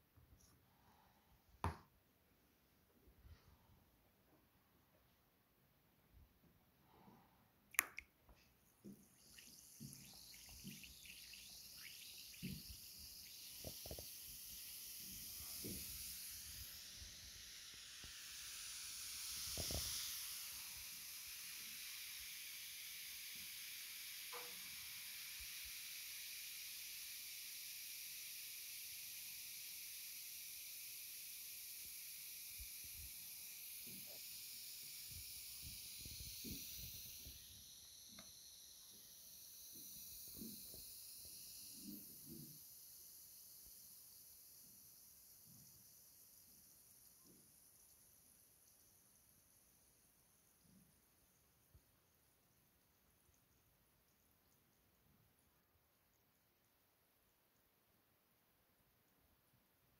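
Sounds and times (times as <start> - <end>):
tablet fizzing in water: 8.8 - 47.2.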